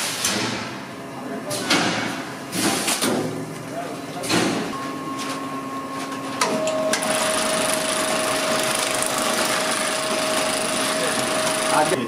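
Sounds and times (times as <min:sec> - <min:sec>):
bag sewing machine stitching: 0:07.0 - 0:12.0.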